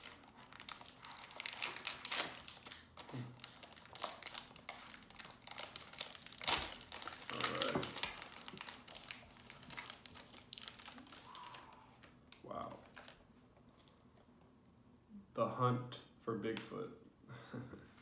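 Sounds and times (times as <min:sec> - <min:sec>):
foil pouch tearing and crinkling: 0:00.0 - 0:11.8.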